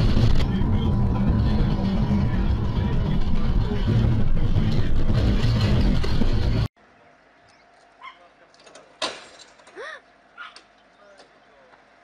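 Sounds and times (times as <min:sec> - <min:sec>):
loud rumbling of poles dragged: 0:00.0 - 0:06.7.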